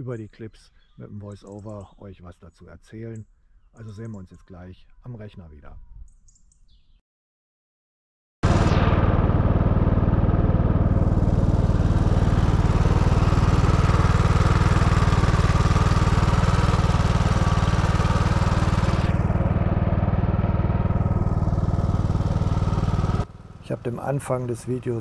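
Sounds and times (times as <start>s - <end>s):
single-cylinder mower engine thudding: 8.8s - 24.9s.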